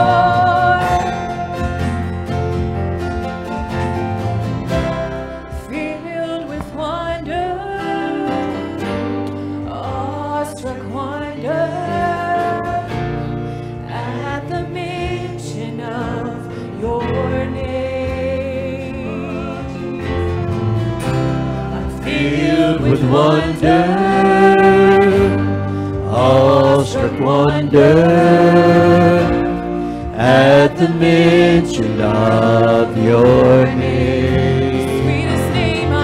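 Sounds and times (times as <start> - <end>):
person singing melody: 0.0 - 2.1, 14.0 - 36.0
acoustic guitars: 0.0 - 36.0
keyboard: 0.0 - 36.0.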